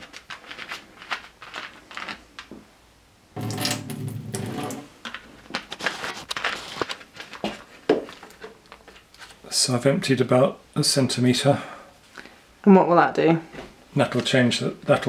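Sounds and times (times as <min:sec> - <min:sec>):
plastic bottle crinkling: 0:00.0 - 0:02.6, 0:03.4 - 0:09.4
water pouring into glass: 0:03.4 - 0:04.9.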